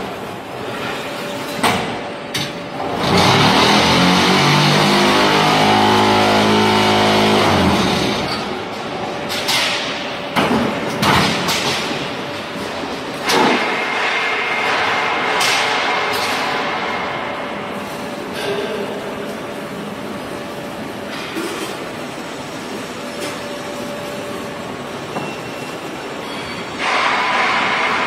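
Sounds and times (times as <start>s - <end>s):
machine mechanical din: 2.3s - 12.3s
rising machine hum: 2.8s - 8.5s.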